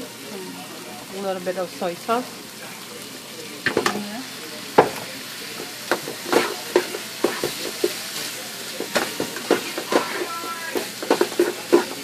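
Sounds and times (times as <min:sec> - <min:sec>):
food sizzling in a frying pan: 0:00.0 - 0:12.0
spatula knocking against pan: 0:08.8 - 0:12.0.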